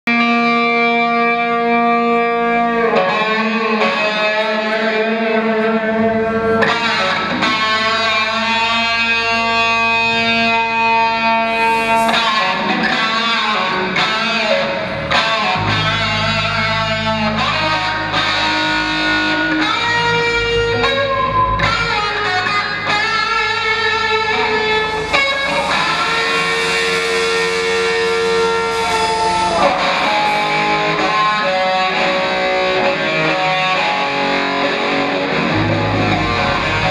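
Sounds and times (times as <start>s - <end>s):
distorted electric guitars: 0.1s - 36.9s
bass line: 11.2s - 36.9s.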